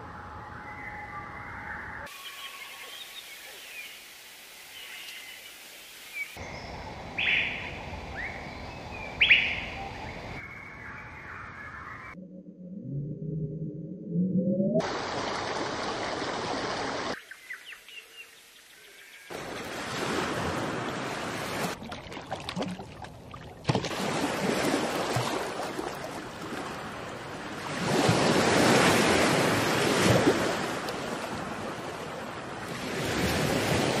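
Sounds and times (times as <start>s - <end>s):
waves breaking and washing ashore: 14.8s - 17.2s, 19.3s - 34.0s.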